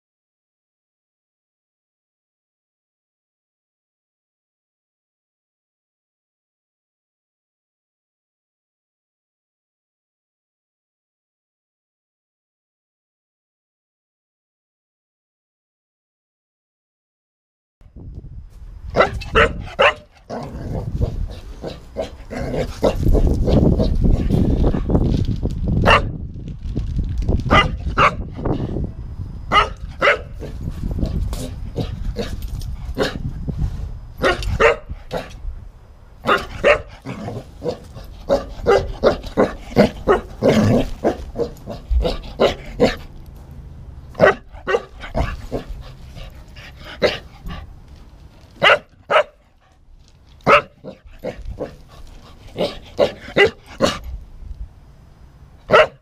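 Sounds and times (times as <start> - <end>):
low rumble on microphone: 17.9 - 43.5
dog barking: 19.0 - 23.6, 25.8 - 26.1, 27.5 - 28.3, 29.5 - 30.5, 34.2 - 35.3, 36.2 - 43.0, 44.2 - 45.6, 48.6 - 49.4, 50.4 - 51.8, 52.6 - 54.0, 55.7 - 56.0.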